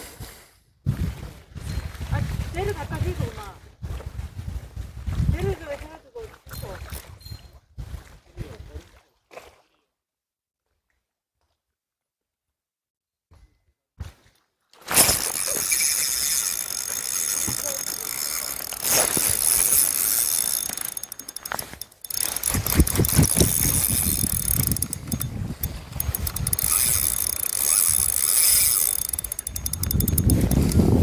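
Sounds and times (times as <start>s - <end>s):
fishing reel gears whirring: 14.9s - 31.0s
rapid fine reel clicking: 14.9s - 31.0s.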